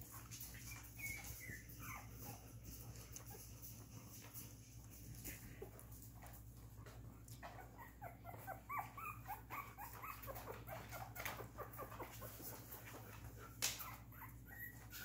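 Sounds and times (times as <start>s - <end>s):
puppies squeaking and whimpering: 0.0s - 3.6s, 7.3s - 15.0s.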